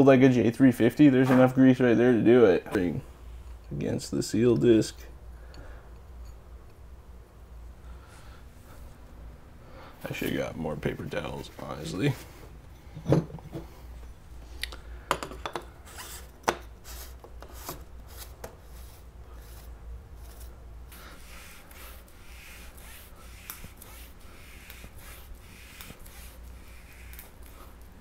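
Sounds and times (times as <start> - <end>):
paper towel wiping hardware: 15.9 - 28.0.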